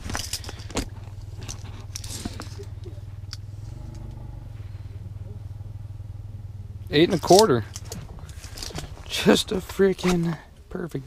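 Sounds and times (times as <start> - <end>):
steady low rumble: 0.0 - 11.0.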